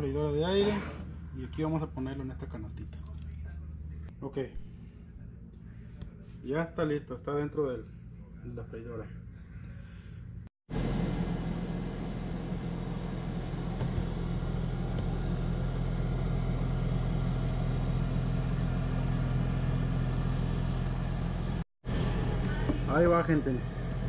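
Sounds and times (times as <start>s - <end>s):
air fryer fan whirring: 10.7s - 24.0s.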